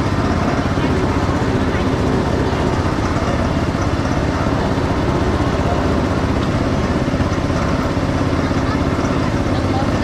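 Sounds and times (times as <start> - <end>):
engine running steadily: 0.0 - 10.0.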